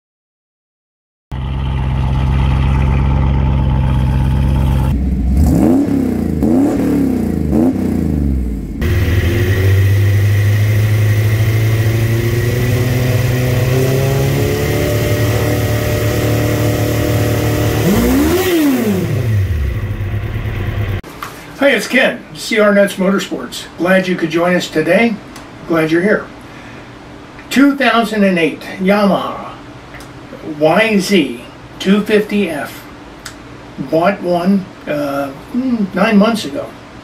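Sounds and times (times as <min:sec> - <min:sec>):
motorcycle engine at high idle: 0:01.3 - 0:05.4, 0:07.0 - 0:21.0
car engine idling and revving: 0:01.3 - 0:21.0.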